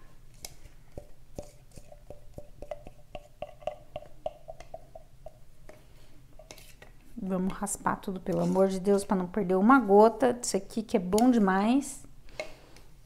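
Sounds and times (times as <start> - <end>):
spatula tapping plastic cup: 1.0 - 5.8.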